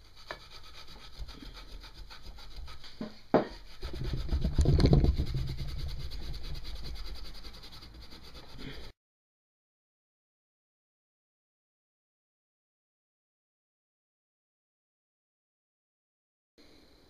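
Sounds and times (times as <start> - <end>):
scouring pad scrubbing metal: 0.0 - 8.9.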